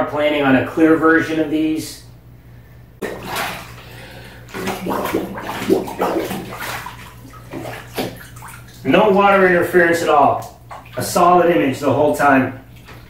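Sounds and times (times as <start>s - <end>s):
bathwater sloshing and splashing: 3.0s - 13.0s.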